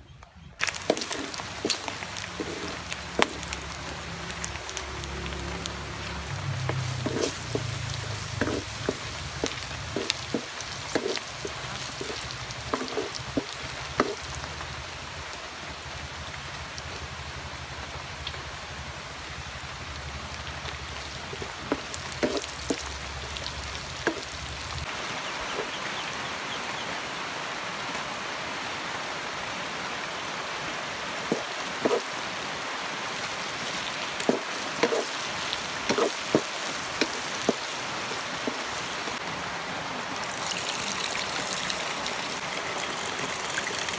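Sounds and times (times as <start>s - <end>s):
oil sizzling in a wok: 0.6s - 25.8s, 30.9s - 39.3s, 40.2s - 43.9s
spatula scraping a wok: 0.7s - 3.5s, 6.1s - 14.2s, 21.3s - 22.9s, 34.2s - 37.8s.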